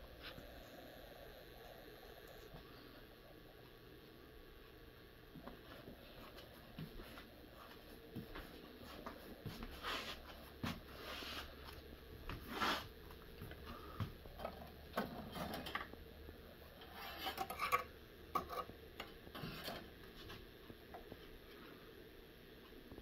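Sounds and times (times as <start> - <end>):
hands rubbing and rustling cables: 5.3 - 16.0.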